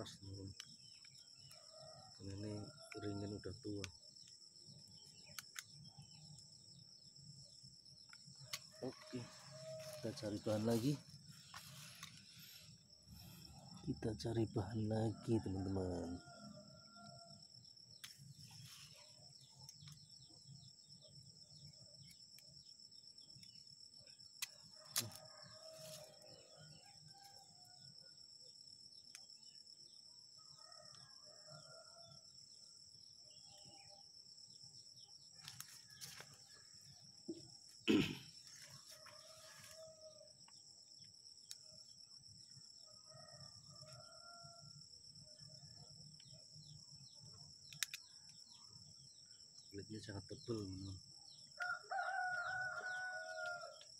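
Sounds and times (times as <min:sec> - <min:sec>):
rooster crowing: 0:08.7 - 0:10.2, 0:24.7 - 0:27.6, 0:38.7 - 0:40.3, 0:51.6 - 0:53.9
sharp clicks: 0:47.7 - 0:48.0.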